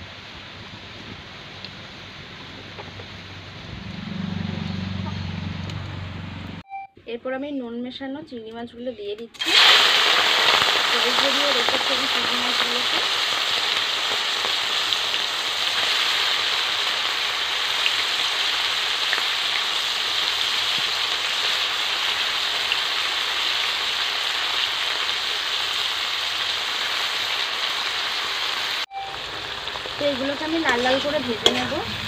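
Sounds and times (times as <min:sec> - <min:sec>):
oil popping and spattering: 0:09.4 - 0:27.8
prawns sizzling in hot oil: 0:09.4 - 0:32.0.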